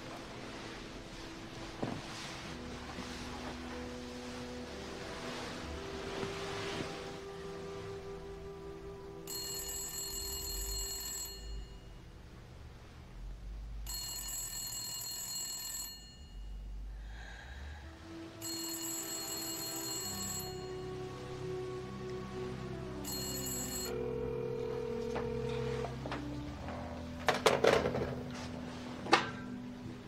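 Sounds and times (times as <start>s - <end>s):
background music: 0.0s - 11.6s, 16.7s - 30.0s
telephone bell ringing: 9.3s - 11.9s, 13.9s - 16.6s, 18.4s - 21.1s, 23.0s - 26.0s.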